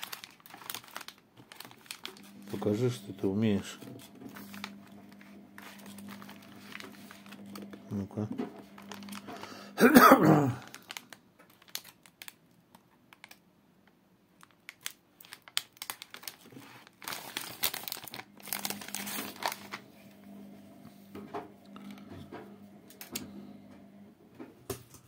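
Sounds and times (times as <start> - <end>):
plastic bag crinkling: 0.0 - 13.4, 14.4 - 19.9.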